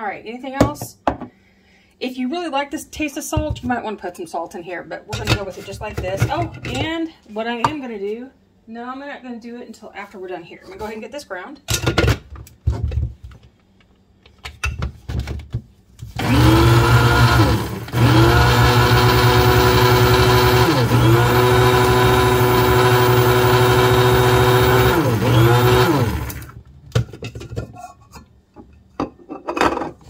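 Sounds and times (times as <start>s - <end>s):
spice grinder motor whirring: 16.2s - 26.6s.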